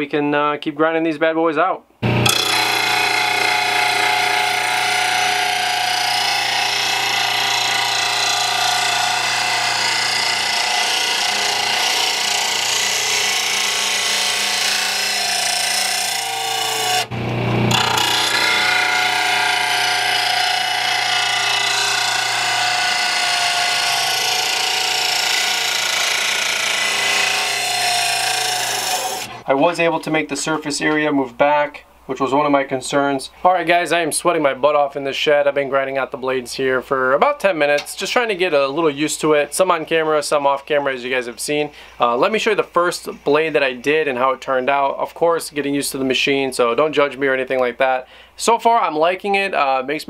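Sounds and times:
grinder motor hum: 0:02.0 - 0:29.4
grinder wheel grinding steel blade: 0:02.0 - 0:29.4.

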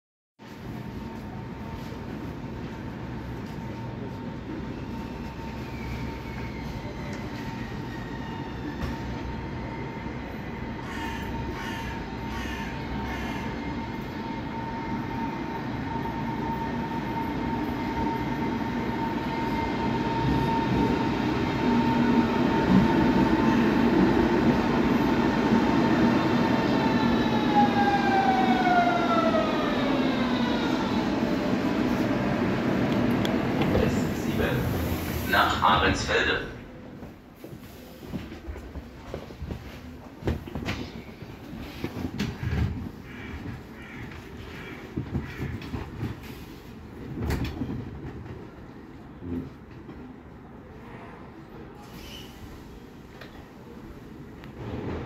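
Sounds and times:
electric train whining: 0:04.9 - 0:36.3.

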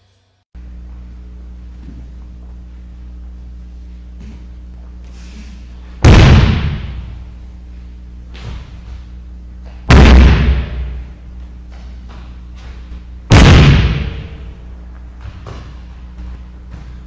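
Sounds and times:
tire slamming on rubber floor: 0:06.0 - 0:07.2, 0:09.7 - 0:14.5.

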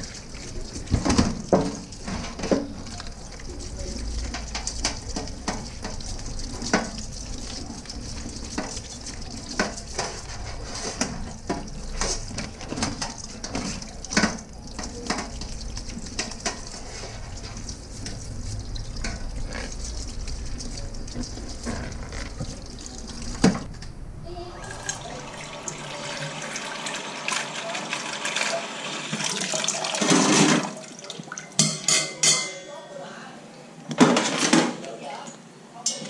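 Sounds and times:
toothbrush scrubbing a shell: 0:00.0 - 0:02.1, 0:02.9 - 0:23.6
tap water running into a sink: 0:00.0 - 0:23.7, 0:24.6 - 0:31.8.

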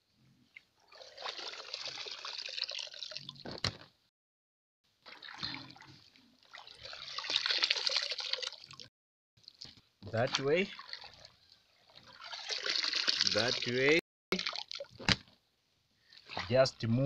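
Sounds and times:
water splashing and trickling: 0:00.8 - 0:03.5, 0:05.0 - 0:15.1, 0:16.0 - 0:16.8.

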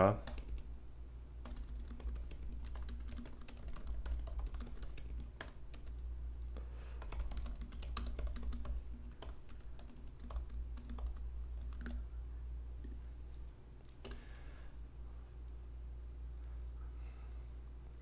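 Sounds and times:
steady low hum: 0:00.0 - 0:18.0
keyboard typing clicks: 0:01.4 - 0:06.0, 0:07.0 - 0:12.0.

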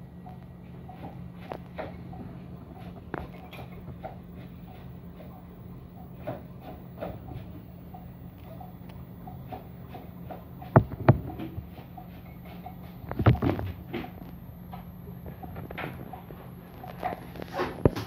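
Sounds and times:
steady low hum: 0:00.0 - 0:18.0
sharp knocks: 0:10.7 - 0:11.6.

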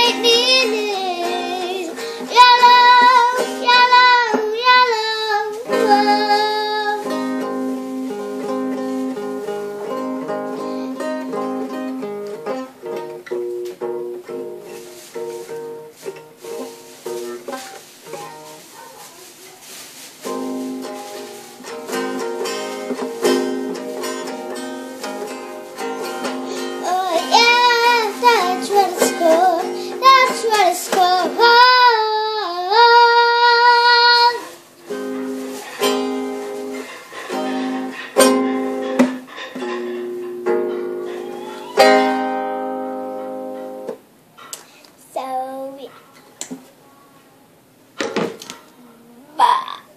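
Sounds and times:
girl singing: 0:00.0 - 0:12.7, 0:26.0 - 0:35.0, 0:41.1 - 0:43.9, 0:45.0 - 0:46.0, 0:48.8 - 0:49.9
guitar strumming: 0:00.0 - 0:18.6, 0:20.2 - 0:44.2.

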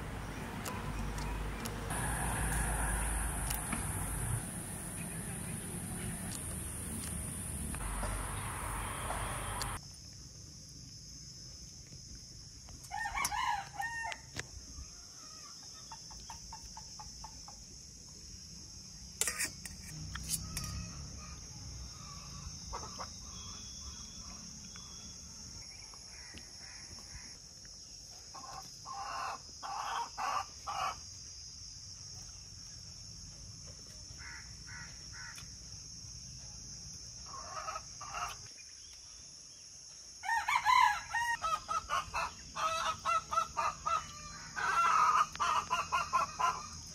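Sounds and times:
rooster crowing: 0:01.9 - 0:04.4, 0:12.9 - 0:14.3, 0:40.2 - 0:46.8
high-pitched hiss: 0:07.1 - 0:09.8
chickens clucking: 0:41.5 - 0:46.7.

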